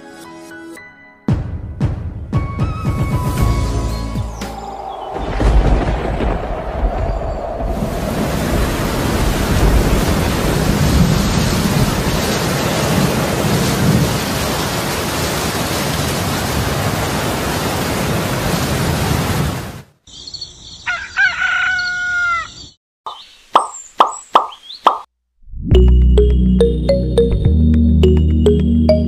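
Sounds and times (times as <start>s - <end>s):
thunder rumbling: 4.3s - 19.7s
heavy rain: 4.6s - 19.9s
rooster crowing: 20.6s - 22.7s.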